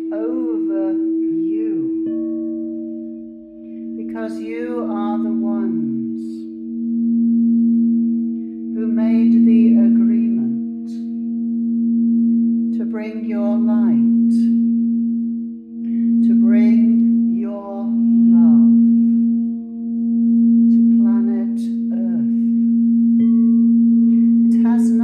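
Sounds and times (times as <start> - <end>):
woman singing wordless phrases: 0.0 - 2.1, 3.8 - 6.7, 8.7 - 11.1, 12.7 - 14.6, 16.2 - 19.1, 20.7 - 22.6, 24.5 - 25.0
singing bowls humming: 0.0 - 25.0.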